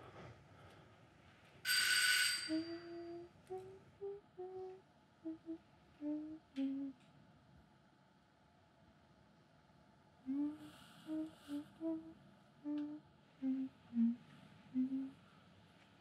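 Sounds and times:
person humming: 2.5s - 7.0s, 10.2s - 15.2s.

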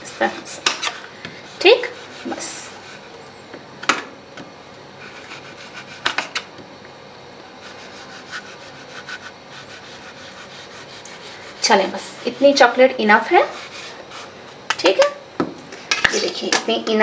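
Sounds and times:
knife scraping chocolate: 0.0s - 3.2s, 5.0s - 6.4s, 7.6s - 14.6s.

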